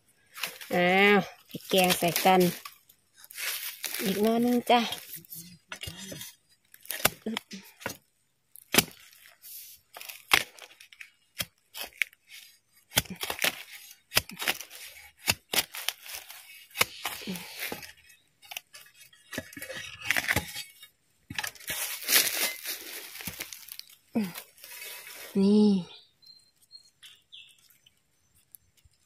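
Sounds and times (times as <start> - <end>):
spade chopping bamboo: 1.6 - 2.7, 3.3 - 8.0, 8.6 - 9.3, 9.9 - 23.7.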